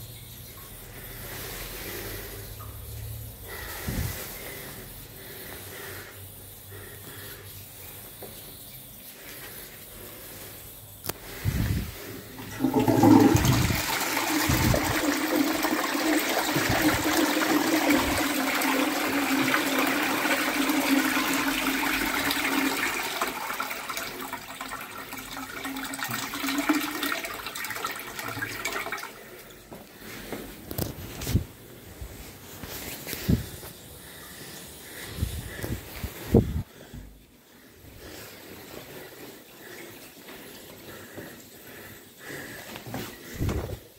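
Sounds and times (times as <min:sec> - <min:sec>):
water rushing through toilet bowl: 0:11.2 - 0:29.6.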